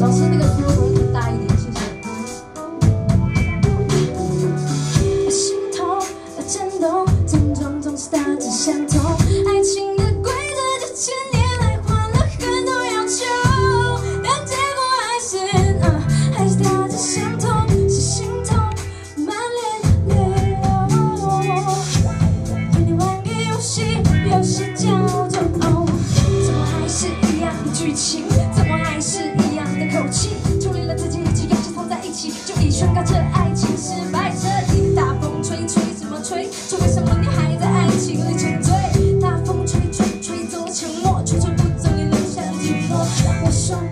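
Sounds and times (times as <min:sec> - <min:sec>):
woman singing pop song: 0:00.0 - 0:02.7, 0:05.0 - 0:43.9
band with drums and bass: 0:00.0 - 0:43.9.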